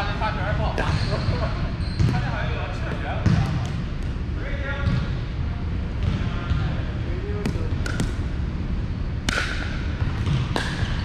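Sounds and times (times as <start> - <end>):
paddles striking pickleball: 7.4 - 8.2, 9.2 - 11.0.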